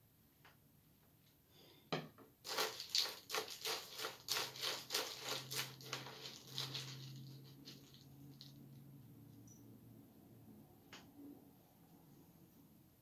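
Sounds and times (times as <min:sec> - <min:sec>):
spoon stirring cereal in bowl: 0:02.4 - 0:08.6.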